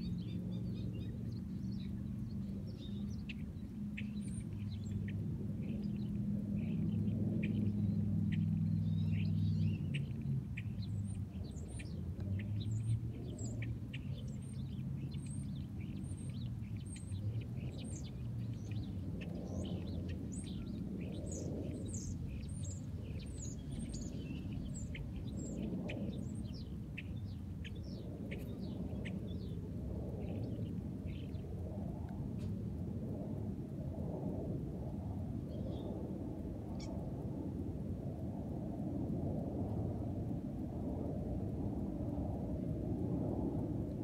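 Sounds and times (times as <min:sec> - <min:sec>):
small birds chirping: 0:00.0 - 0:31.5, 0:35.5 - 0:36.0, 0:36.7 - 0:37.1
steady low rumble: 0:00.0 - 0:44.0.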